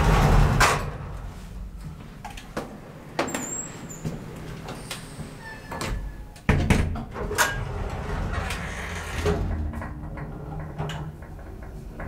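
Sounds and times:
elevator doors closing clunk: 3.2 - 12.0.

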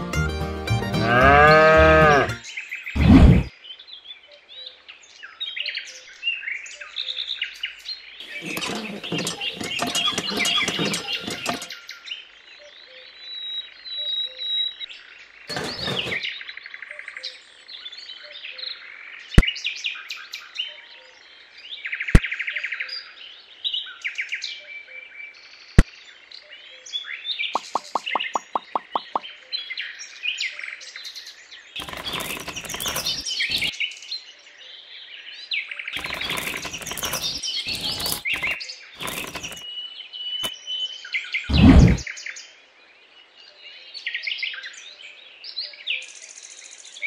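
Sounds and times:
pebbles rustling and clattering: 8.2 - 11.9, 15.5 - 16.2, 31.8 - 33.7, 36.0 - 39.6
small birds chirping: 27.4 - 29.7.

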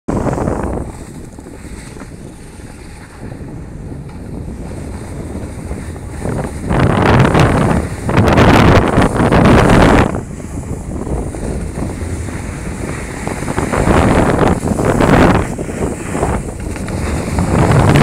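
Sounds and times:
wind blasting microphone: 0.1 - 18.0.

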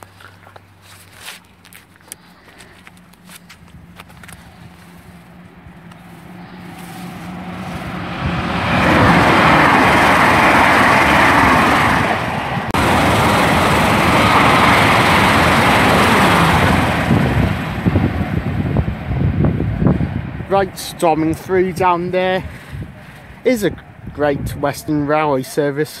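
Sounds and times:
train passing at speed: 4.2 - 23.0.

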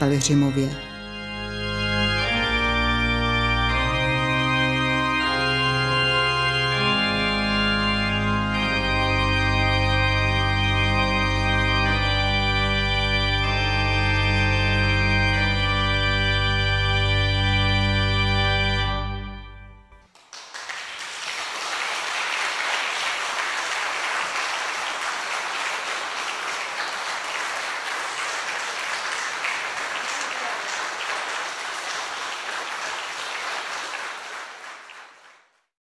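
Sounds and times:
pipe organ chord: 0.0 - 20.0
audience applauding: 20.0 - 35.7.

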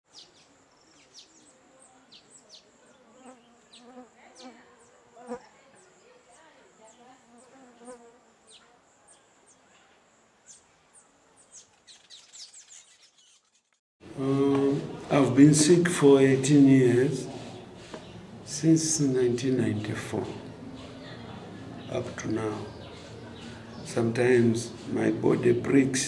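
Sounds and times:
bird chirps: 10.4 - 13.8, 21.8 - 23.9.

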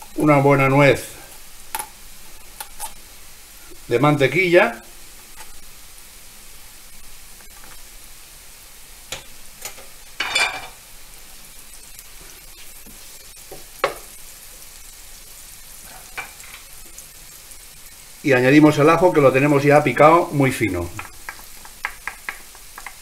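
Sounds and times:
butter sizzling in a pan: 0.0 - 23.0
spoon scraping and knocking pan: 9.1 - 10.8, 12.6 - 14.2, 15.9 - 16.6, 21.0 - 23.0.

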